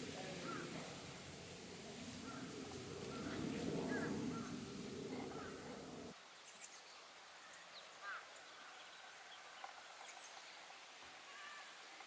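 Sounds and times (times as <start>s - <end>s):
birds chirping: 0.0s - 6.2s
low steady background noise: 0.0s - 12.0s.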